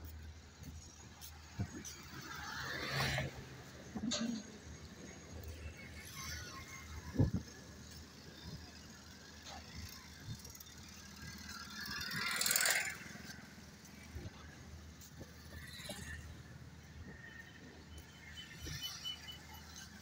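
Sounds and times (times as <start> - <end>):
motorcycle passing: 9.7 - 14.3.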